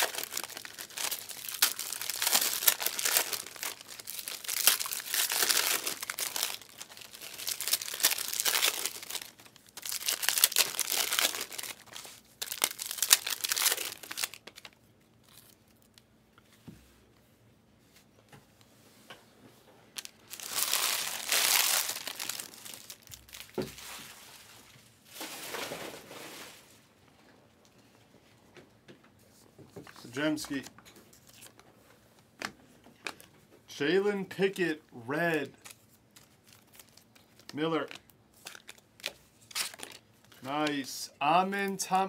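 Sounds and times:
wrappers crinkling and tearing: 0.0 - 16.0, 20.0 - 24.5, 30.4 - 31.6, 35.5 - 40.9.

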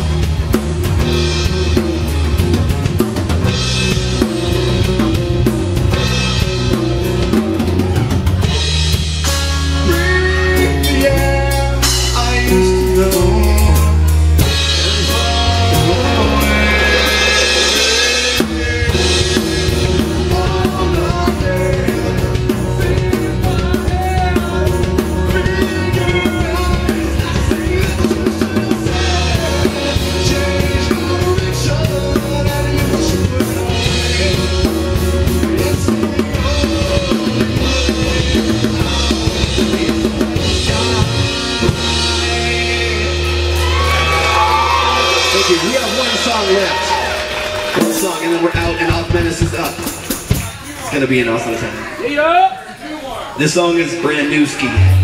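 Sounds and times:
drum kit beat: 0.0 - 51.5, 54.8 - 55.0
electric bass: 0.0 - 51.8, 54.6 - 55.0
man singing lead vocal: 9.7 - 43.9.

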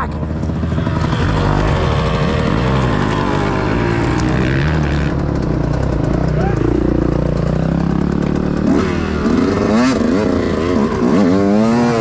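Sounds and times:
dirt bike engine revving: 0.0 - 12.0.

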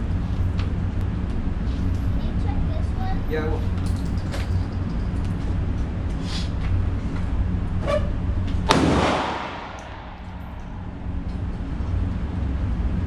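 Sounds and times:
steady low hum: 0.0 - 13.0
pistol shot with echo: 8.7 - 10.6.

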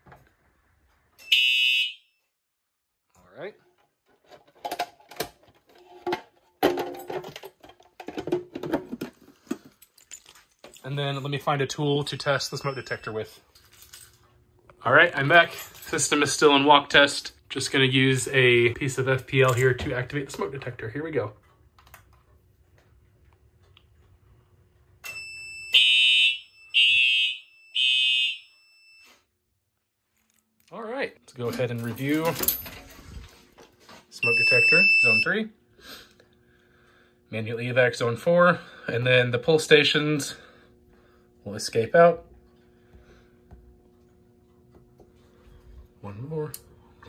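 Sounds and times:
steady high alarm tone: 1.2 - 2.3, 12.1 - 13.4, 25.0 - 29.3, 34.2 - 35.5
fire alarm horn blasts: 1.2 - 2.4, 25.0 - 29.2, 34.2 - 35.5.

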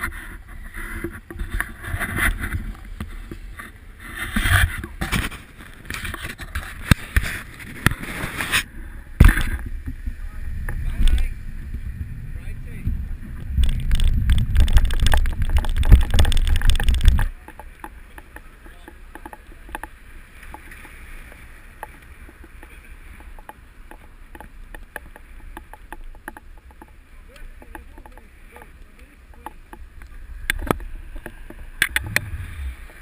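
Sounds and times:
wind buffeting microphone: 0.0 - 18.2, 29.7 - 33.0
road rumble: 0.0 - 33.0
bicycle clicks and rattles: 13.4 - 29.8.

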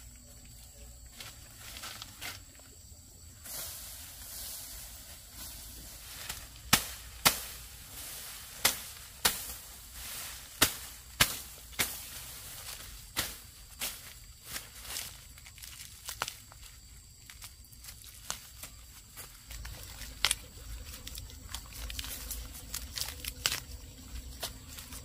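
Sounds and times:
rustle of grass leaves: 0.0 - 25.0
blade chopping stalks: 5.3 - 16.4, 21.5 - 25.0.

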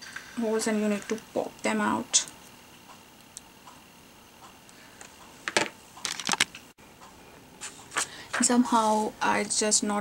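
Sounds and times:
paper pieces popping out: 6.1 - 6.5.

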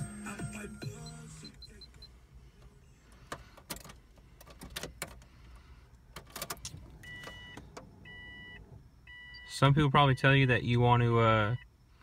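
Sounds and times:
ignition key clicks: 3.2 - 5.3
short electronic beeps: 7.0 - 10.2.

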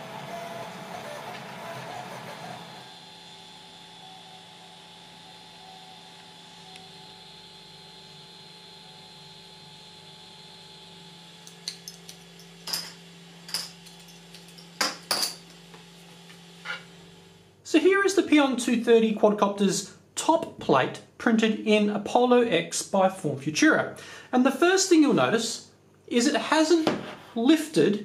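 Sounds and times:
printer fans humming: 0.0 - 9.0.

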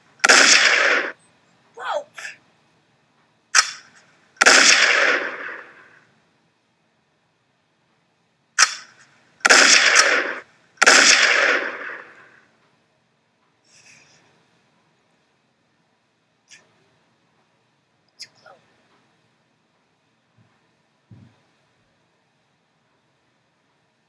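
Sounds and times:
pistol gunshots: 0.2 - 1.2, 3.5 - 6.0, 8.6 - 12.4.

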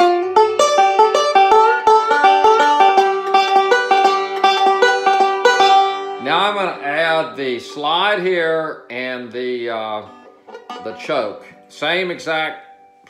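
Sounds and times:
banjo picking: 0.0 - 13.0.

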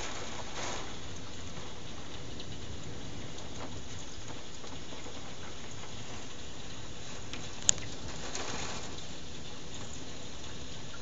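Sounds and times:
heavy rain falling: 0.0 - 11.0.

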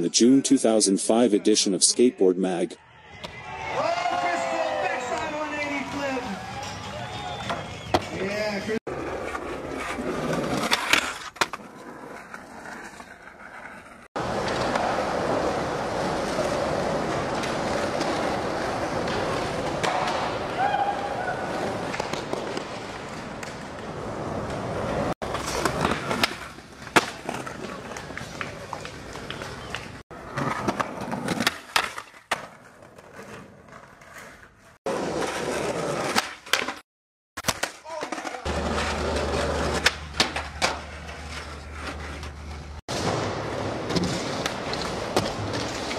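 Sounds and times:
crowd: 2.7 - 8.7
skateboard wheels rolling: 3.4 - 36.8, 37.4 - 45.9
skateboard cracking down: 8.9 - 13.2
skateboard snaps: 37.4 - 38.4.

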